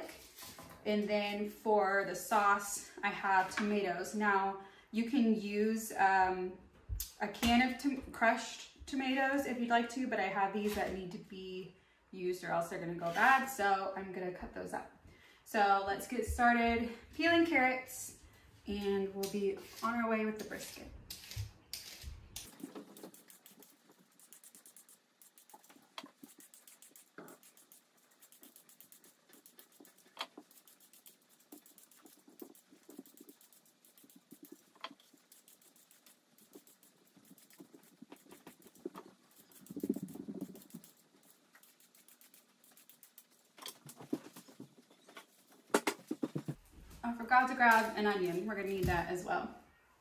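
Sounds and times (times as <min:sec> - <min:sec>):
peeler scraping carrots: 0:19.2 - 0:46.6.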